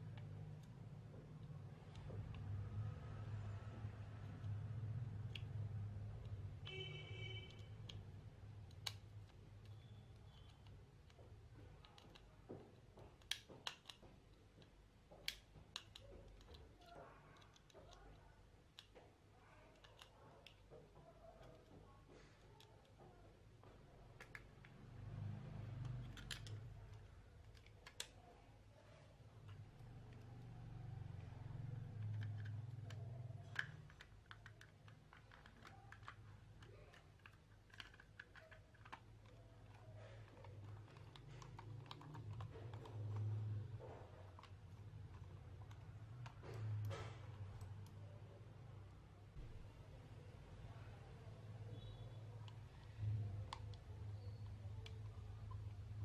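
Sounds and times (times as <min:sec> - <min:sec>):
plastic mouse shell clicking: 0:31.8 - 0:46.9.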